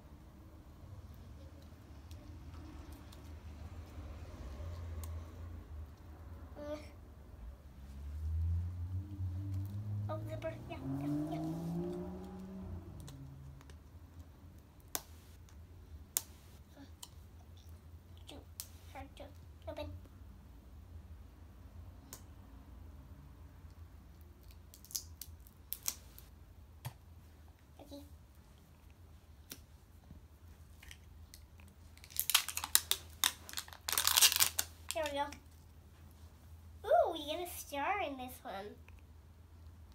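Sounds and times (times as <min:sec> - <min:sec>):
plastic wrapping crinkling and tearing: 0:30.8 - 0:35.6.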